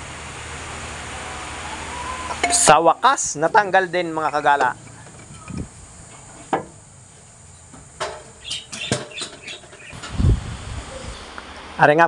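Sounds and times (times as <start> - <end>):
metal tools clicking and knocking: 4.2 - 5.7.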